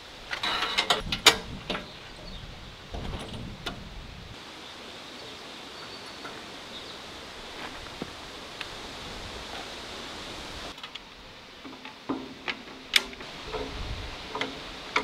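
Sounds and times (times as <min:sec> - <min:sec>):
metal clicks and rattles: 0:00.3 - 0:01.9, 0:11.7 - 0:15.0.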